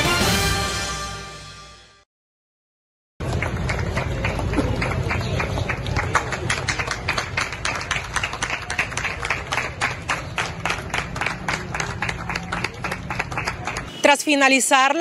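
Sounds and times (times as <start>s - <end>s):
group applause: 3.2s - 14.0s.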